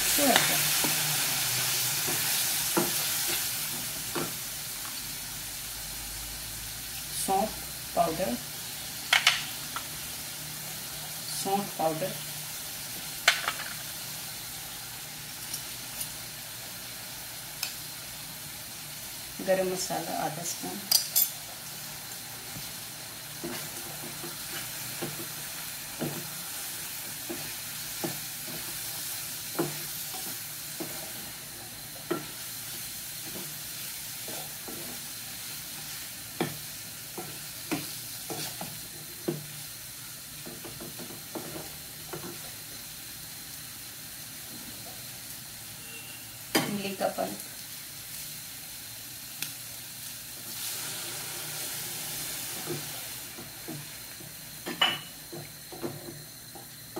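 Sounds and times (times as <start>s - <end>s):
meat sizzling in hot oil: 0.0s - 56.9s.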